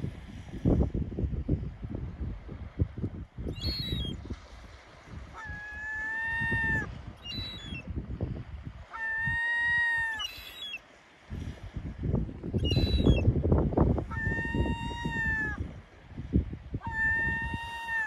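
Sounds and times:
wind rumbling on microphone: 0:00.0 - 0:18.0
gulls calling: 0:05.4 - 0:07.9, 0:08.9 - 0:10.8, 0:12.6 - 0:13.2, 0:14.1 - 0:15.6, 0:16.8 - 0:18.0.

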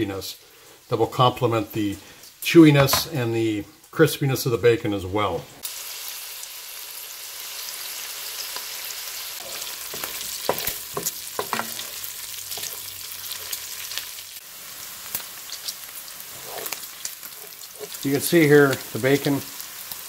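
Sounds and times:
bacon and onion sizzling in pan: 0:05.6 - 0:20.0
wooden spoon scraping pan: 0:09.4 - 0:13.6, 0:16.2 - 0:18.1.

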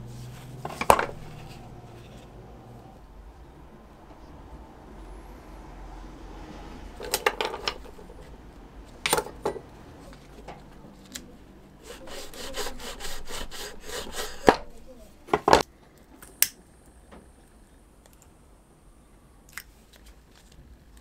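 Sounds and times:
knife sawing through webbing: 0:11.8 - 0:14.8.

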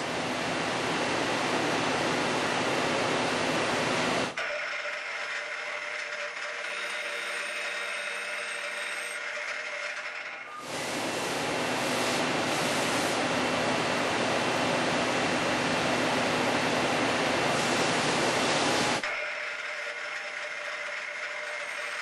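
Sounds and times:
lathe rushing noise: 0:04.4 - 0:13.2, 0:17.6 - 0:22.0.

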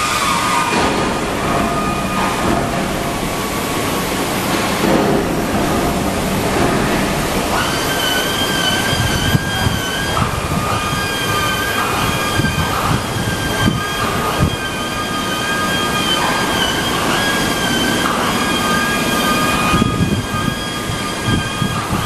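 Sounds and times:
high steady squeal: 0:00.0 - 0:04.5, 0:05.2 - 0:22.0
metal grinding machinery running: 0:00.0 - 0:22.0.

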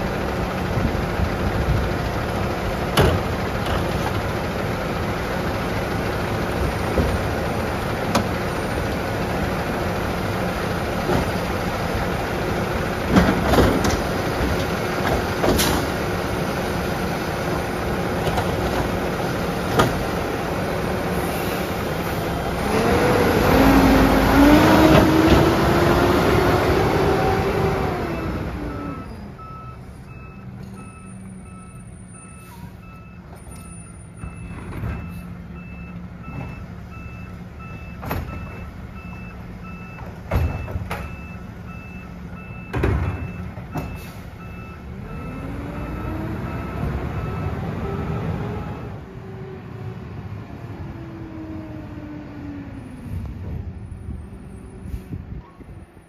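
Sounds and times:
garbage truck engine revving: 0:00.0 - 0:29.4, 0:42.3 - 0:53.8.

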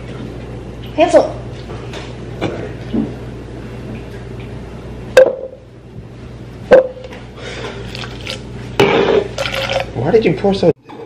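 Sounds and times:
drink fizzing: 0:07.6 - 0:08.5, 0:09.2 - 0:10.0.

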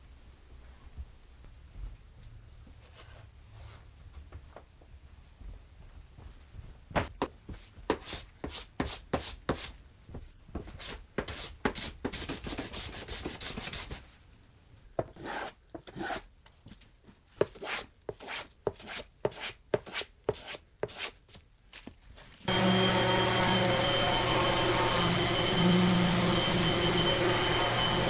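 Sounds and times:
hand plane shaving wood: 0:15.1 - 0:16.2, 0:17.4 - 0:21.1.

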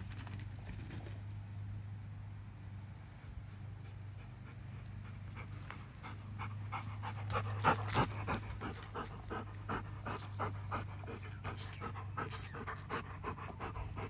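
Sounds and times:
steady low hum: 0:00.0 - 0:14.0
puppy panting quickly: 0:03.3 - 0:14.0.

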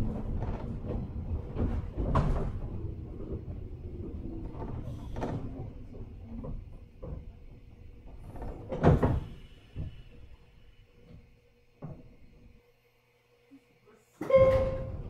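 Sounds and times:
knocks and thumps: 0:00.0 - 0:10.1
train equipment humming: 0:00.0 - 0:15.0.

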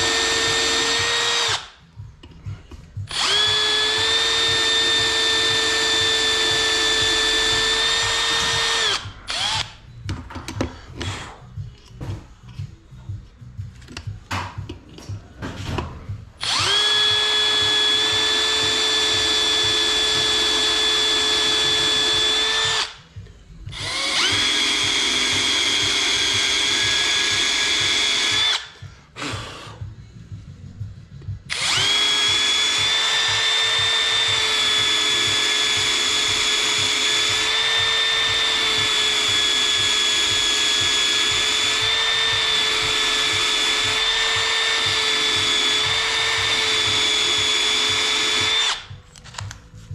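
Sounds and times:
drill whining into metal: 0:00.0 - 0:01.8, 0:03.0 - 0:10.0, 0:16.4 - 0:23.1, 0:23.7 - 0:28.8, 0:31.5 - 0:49.0.

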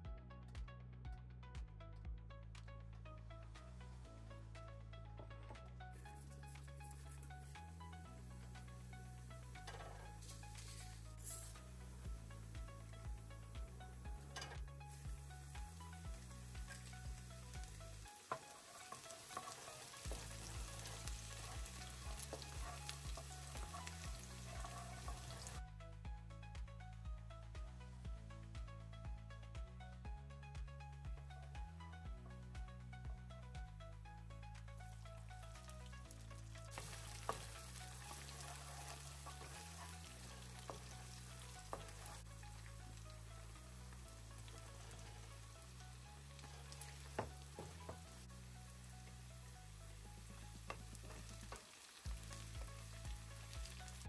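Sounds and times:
soft background music: 0:00.0 - 0:54.0
garlic sizzling in hot oil: 0:09.5 - 0:13.2, 0:14.2 - 0:25.6, 0:35.2 - 0:54.0
wooden spatula stirring: 0:18.3 - 0:25.6
wooden spoon knocking on pan: 0:47.1 - 0:48.0.

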